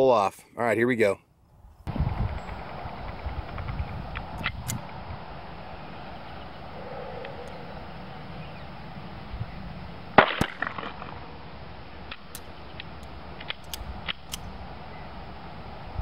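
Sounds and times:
pistol shot: 10.2s - 11.3s.

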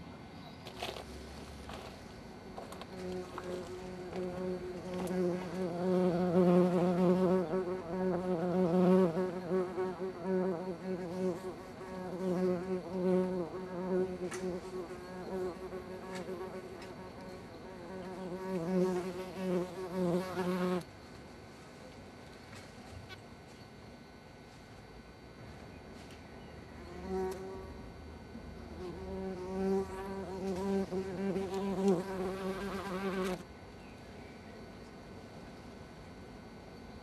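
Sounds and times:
bumblebee buzzing: 2.9s - 20.9s, 26.8s - 27.8s, 28.7s - 33.5s.

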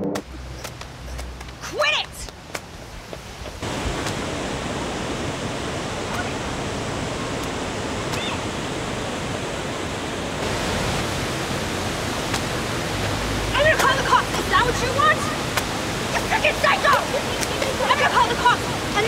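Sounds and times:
water pouring down fountain: 3.2s - 19.0s.

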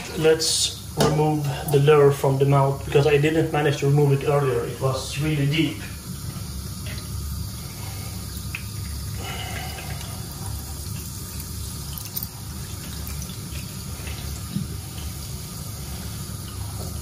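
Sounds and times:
tap running into metal sink: 0.9s - 1.4s.

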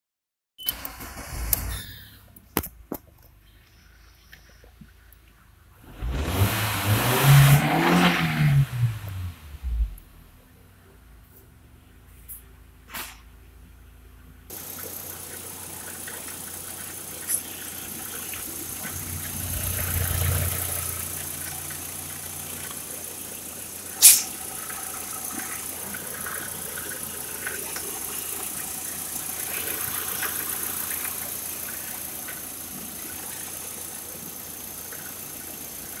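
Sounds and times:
car engine idling: 8.6s - 36.0s
sharp click: 24.0s - 24.4s.

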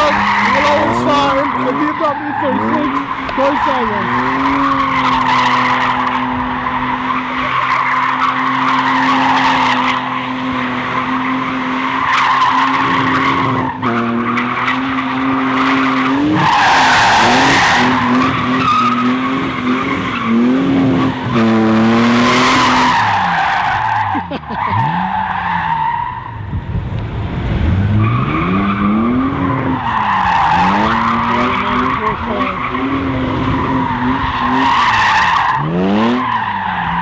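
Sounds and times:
tyres squealing: 0.0s - 10.3s
car engine revving high: 0.0s - 26.5s, 27.2s - 37.0s.

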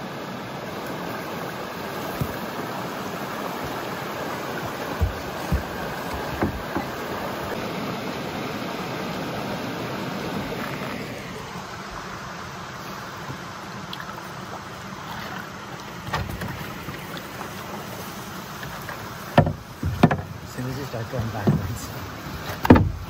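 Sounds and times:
waterfall rushing: 0.0s - 16.0s.

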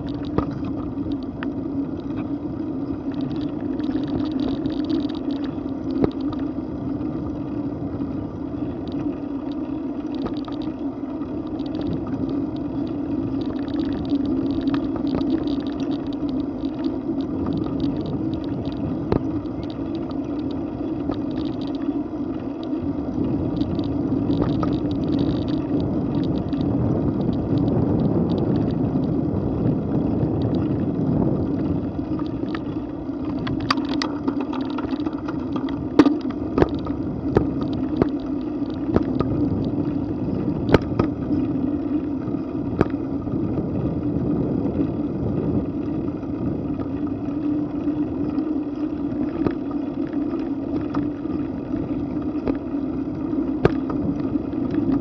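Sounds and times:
wind and road noise: 0.0s - 55.0s
sharp clicks and knocks: 33.3s - 39.8s, 40.6s - 41.2s.

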